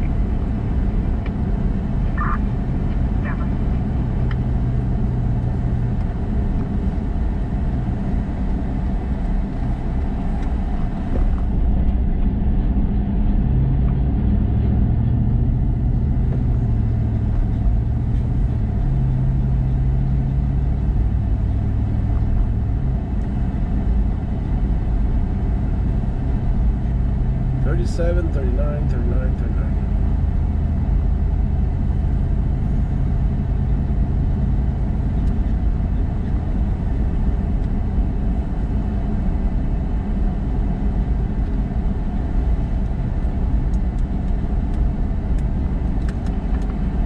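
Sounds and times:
car engine: 0.0 - 47.0
road rumble: 0.0 - 47.0.

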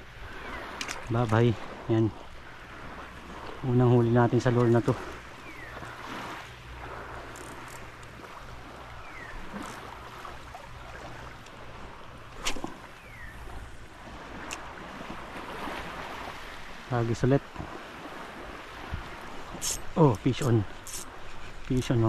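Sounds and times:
small waves lapping: 0.0 - 22.0
wind on the microphone: 17.4 - 22.0.

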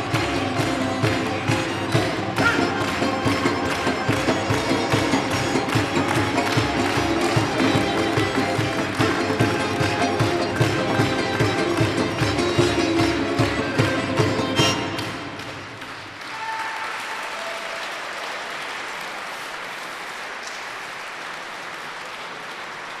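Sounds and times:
folk ensemble with flute and strings: 0.0 - 15.5
audience applauding: 0.0 - 23.0.

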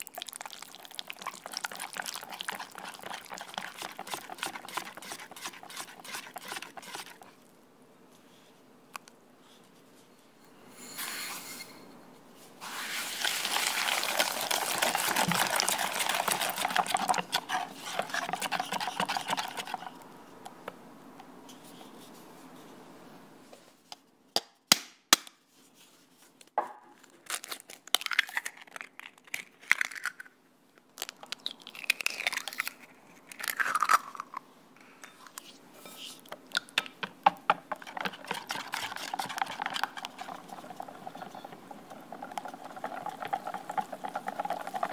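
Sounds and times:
eggs cracking: 0.0 - 7.4, 13.2 - 20.0, 27.3 - 30.3, 30.9 - 34.4, 36.2 - 44.9
whisk beating in glass bowl: 1.2 - 7.3, 13.2 - 20.0, 37.0 - 44.9
cream cheese scraping in bowl: 1.2 - 7.4, 12.7 - 20.0, 37.3 - 44.9.

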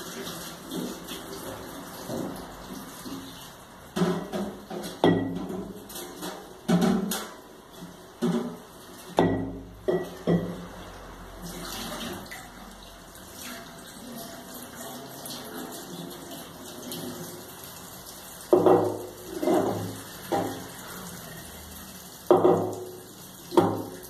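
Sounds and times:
container knocking against sink: 3.9 - 7.4, 8.2 - 8.6, 9.2 - 10.7, 18.5 - 20.7, 22.3 - 24.0
tap running into a steel sink: 18.5 - 20.8, 22.3 - 24.0.

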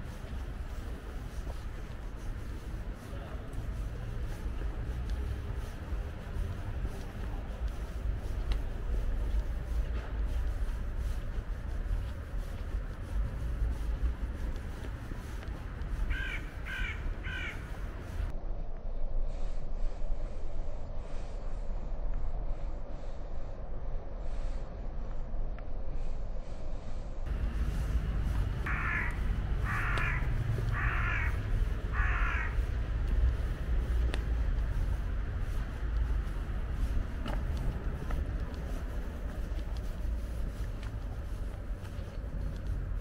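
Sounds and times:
low rumble: 0.0 - 43.0
crow cawing: 16.1 - 17.9, 28.6 - 32.7.

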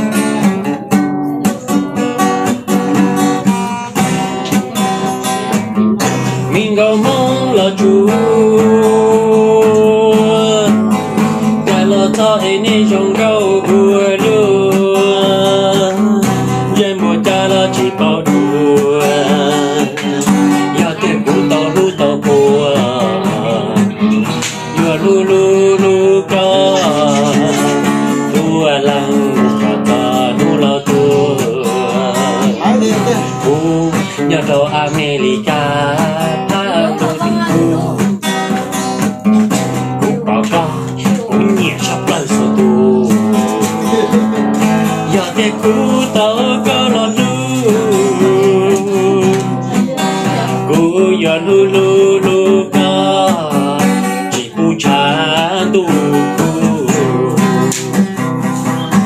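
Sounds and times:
acoustic guitar song: 0.0 - 59.0.

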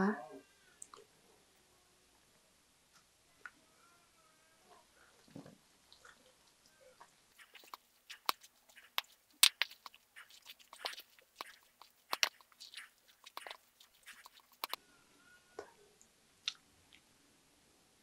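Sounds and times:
spoon scraping metal bowl: 7.4 - 14.8.

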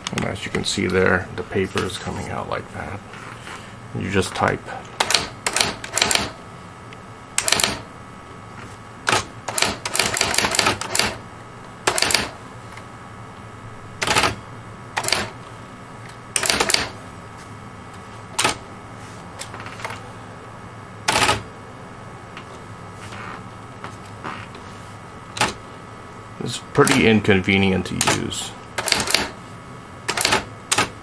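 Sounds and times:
typewriter clacking: 5.0 - 6.3, 7.4 - 7.8, 9.1 - 11.2, 11.9 - 12.3, 16.4 - 16.9, 28.8 - 29.3, 30.1 - 30.9.

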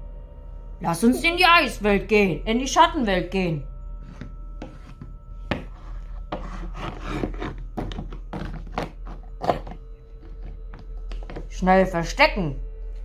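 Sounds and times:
plastic toy scraping on board: 5.6 - 10.5.

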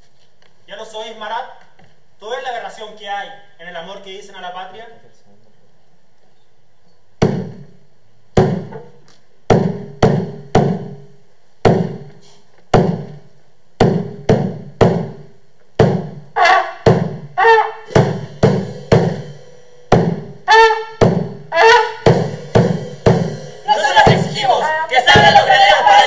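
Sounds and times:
drum strokes ringing: 15.8 - 26.0.

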